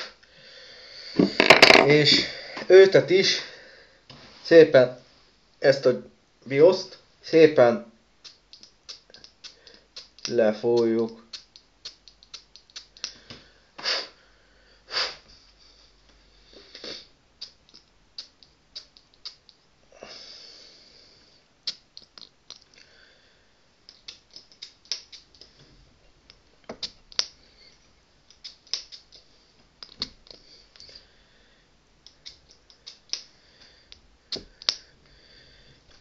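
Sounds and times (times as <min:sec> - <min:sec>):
plastic bottle clicks and rattles: 0:01.2 - 0:01.9.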